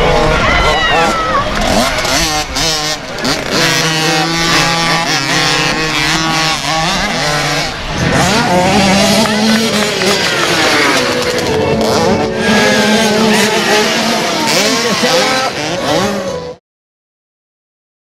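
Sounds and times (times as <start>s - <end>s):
motocross bike engines revving: 0.0s - 16.6s.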